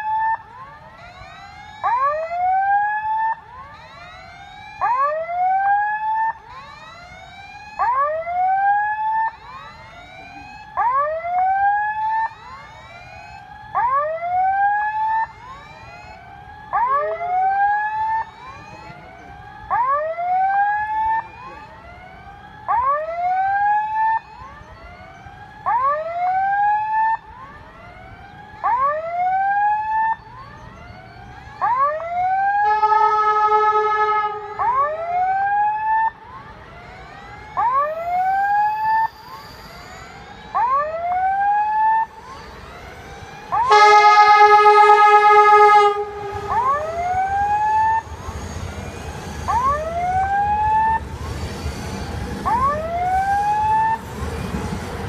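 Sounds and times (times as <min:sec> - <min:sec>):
level crossing whooping alarm: 0:00.0 - 0:55.0
train horn: 0:32.6 - 0:34.7, 0:43.6 - 0:50.3.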